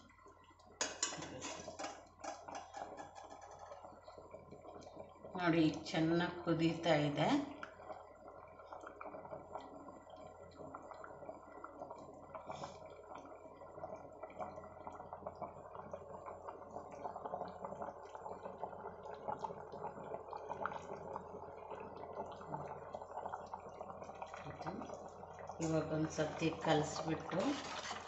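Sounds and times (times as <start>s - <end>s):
food boiling with bubbling pops: 0.0s - 28.0s.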